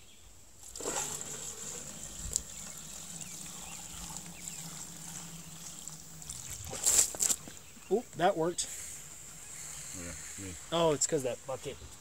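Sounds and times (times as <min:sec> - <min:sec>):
liquid pouring through funnel: 0:00.7 - 0:07.5.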